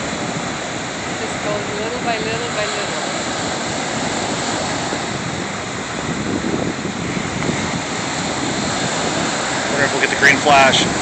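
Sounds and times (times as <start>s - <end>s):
surf waves washing up beach: 0.0s - 11.0s.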